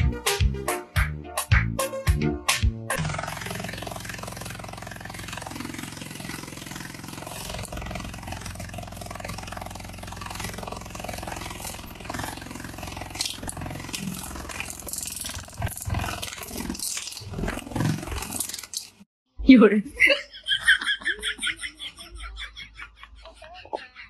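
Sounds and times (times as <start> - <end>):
beetle wings buzzing: 5.3 - 18.9.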